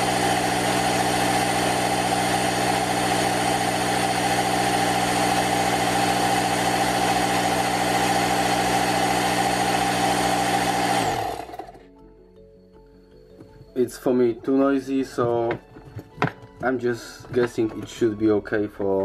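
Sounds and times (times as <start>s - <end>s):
air compressor droning: 0.0s - 11.9s
compressor motor running down: 0.0s - 11.9s.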